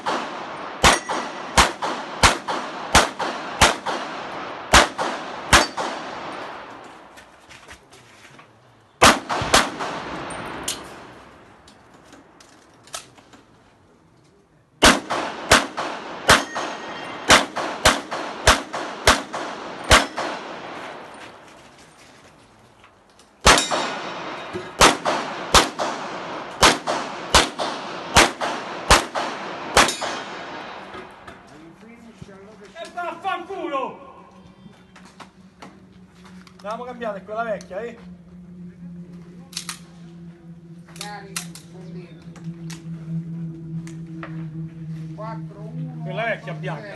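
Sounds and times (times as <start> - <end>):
handgun shots: 0.0 - 6.1, 26.6 - 30.3.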